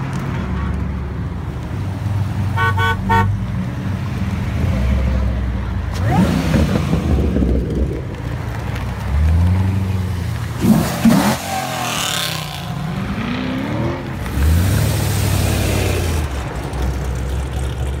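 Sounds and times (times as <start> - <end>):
muscle car engines revving: 4.2 - 18.0.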